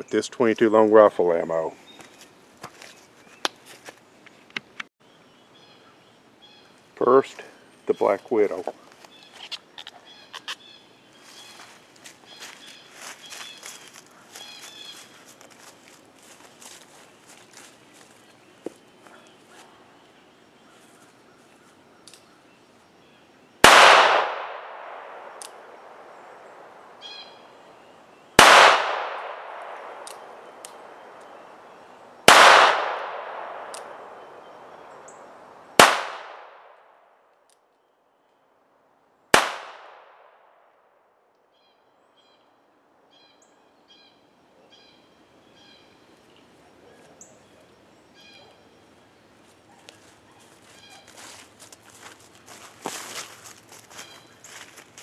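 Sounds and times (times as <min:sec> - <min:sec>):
faint small clicks: 0:22.0 - 0:22.3
gunshots with long echo: 0:23.6 - 0:26.8, 0:28.4 - 0:31.0, 0:32.2 - 0:34.4, 0:35.8 - 0:36.9, 0:39.3 - 0:40.6.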